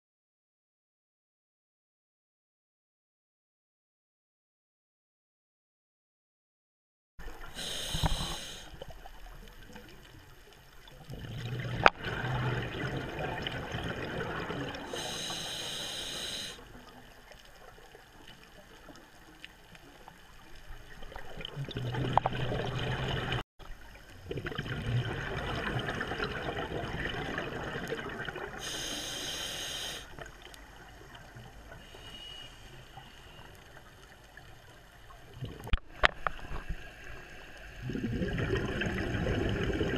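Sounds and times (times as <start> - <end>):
diver breathing through regulator: 7.6 - 8.8, 14.8 - 16.6, 28.6 - 30.2, 31.8 - 33.5
bubbling exhalations: 11.0 - 15.4, 24.2 - 28.9, 37.8 - 39.9.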